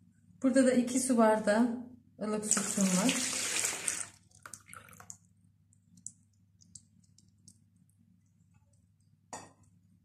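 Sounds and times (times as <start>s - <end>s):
faint light clicks and ticks: 5.7s - 7.9s.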